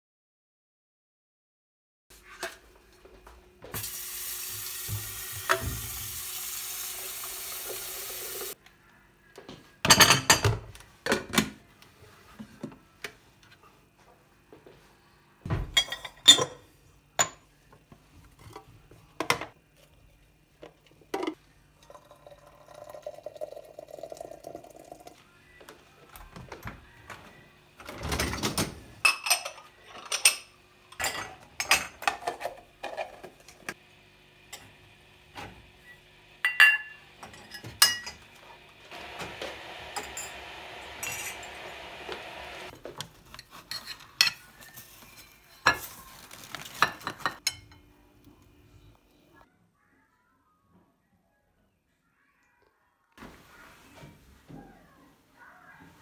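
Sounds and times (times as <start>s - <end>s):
kitchen tap running: 3.7s - 8.6s, 21.9s - 25.1s, 38.9s - 42.7s
dishes and cutlery clinking: 9.8s - 11.6s, 15.6s - 17.5s, 28.0s - 33.8s, 36.4s - 38.3s, 41.0s - 41.6s, 42.8s - 46.0s, 46.6s - 47.9s.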